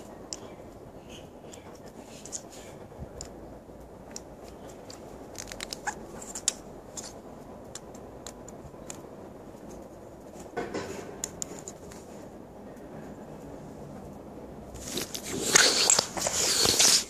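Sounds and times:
small sharp clicks and taps: 0:07.7 - 0:09.8.

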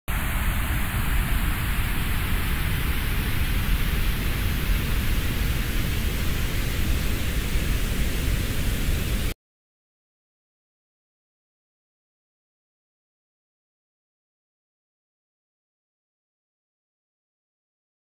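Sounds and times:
static-like rumble and hiss: 0:00.1 - 0:09.3.

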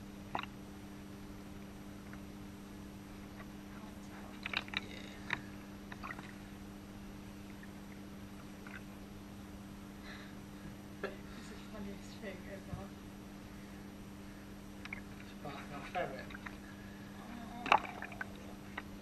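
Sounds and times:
steady low hum: 0:00.0 - 0:19.0
bathwater sloshing and splashing: 0:04.2 - 0:06.5, 0:07.5 - 0:09.0, 0:14.8 - 0:17.0, 0:17.6 - 0:19.0.

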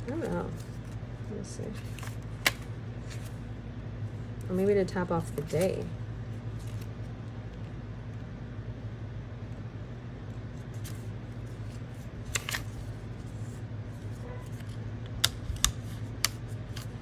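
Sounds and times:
steady low hum: 0:00.0 - 0:17.0
paper pages flipping: 0:01.7 - 0:03.4, 0:06.5 - 0:07.1, 0:10.5 - 0:17.0.

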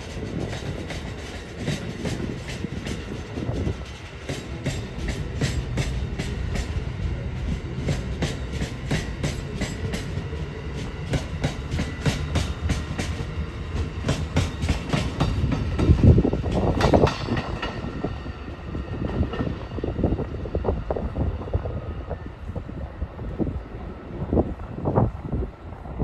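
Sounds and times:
train wheels clicking over rail joints: 0:00.0 - 0:20.2
train rumble: 0:00.0 - 0:26.0.

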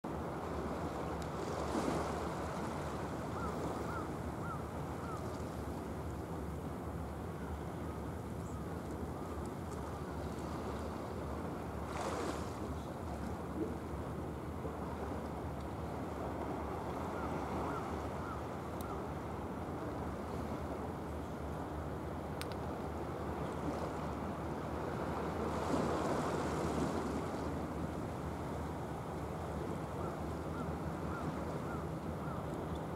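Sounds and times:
wind: 0:00.0 - 0:32.9
sea water rushing: 0:00.3 - 0:05.2, 0:10.0 - 0:13.9, 0:23.2 - 0:32.4.

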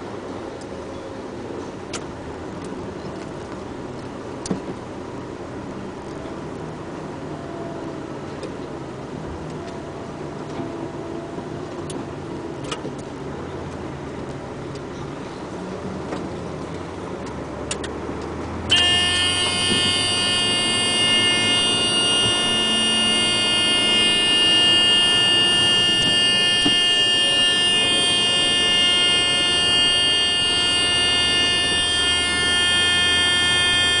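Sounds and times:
buzzer-like warning tone: 0:18.7 - 0:34.0.

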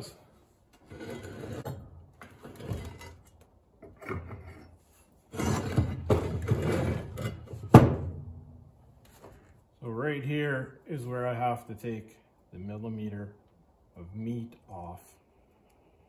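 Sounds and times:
metal parts scraping and rattling: 0:00.8 - 0:07.7.

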